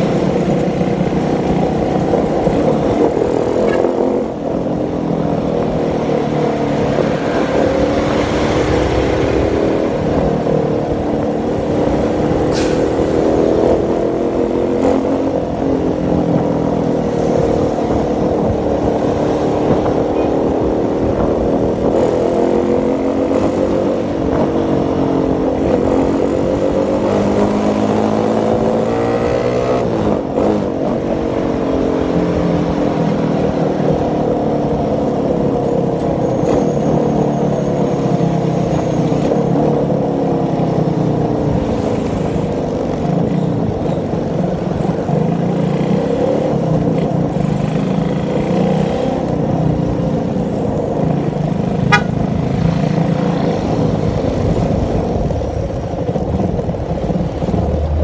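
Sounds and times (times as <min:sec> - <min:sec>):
motorcycle engine revving: 0:44.4 - 0:58.0.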